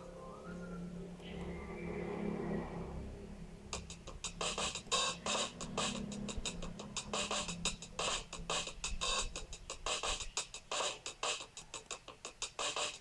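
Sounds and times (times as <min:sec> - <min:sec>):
low steady drone: 0:00.0 - 0:08.5
fast clicking beat: 0:03.7 - 0:13.0.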